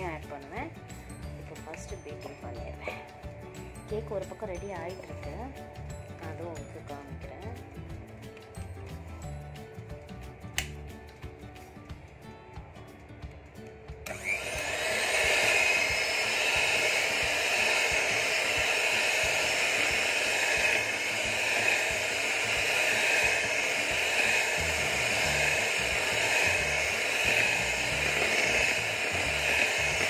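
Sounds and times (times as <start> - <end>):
electric hand mixer whisking cream: 14.0 - 30.0.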